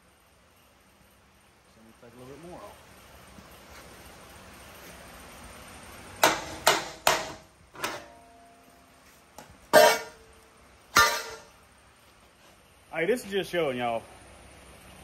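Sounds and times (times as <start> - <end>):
sharp metal knocks: 6.2 - 8.2, 9.7 - 10.3, 10.9 - 11.6
steel piece clanking on metal frame: 9.7 - 10.3, 11.0 - 11.6.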